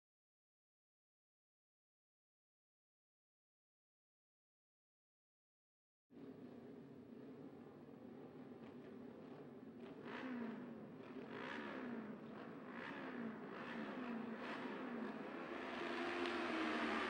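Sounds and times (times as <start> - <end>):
motorcycle engines revving: 8.8 - 17.0.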